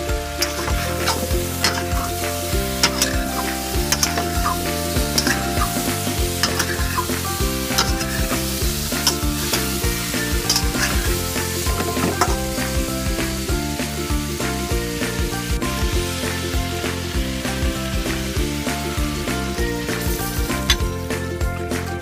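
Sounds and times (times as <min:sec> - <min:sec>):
background music with melody: 0:00.0 - 0:22.0
food sizzling in a wok: 0:00.0 - 0:22.0
spatula scraping a wok: 0:00.4 - 0:12.4.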